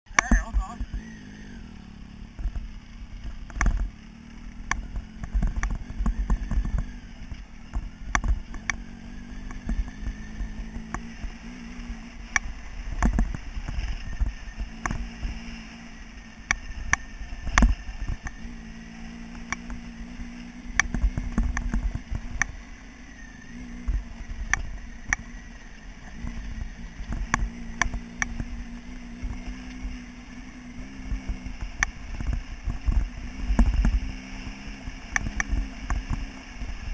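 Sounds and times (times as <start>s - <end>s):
motorcycle engine humming: 0.0s - 36.9s
bike knocking and rattling: 4.6s - 7.0s, 7.6s - 8.8s, 12.8s - 15.1s.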